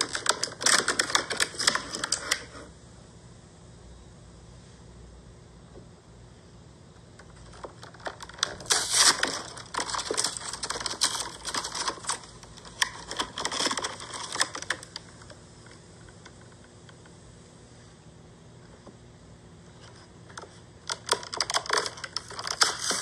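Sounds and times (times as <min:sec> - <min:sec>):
plastic packaging crinkling: 0:00.0 - 0:02.5, 0:07.4 - 0:15.4, 0:20.9 - 0:23.0.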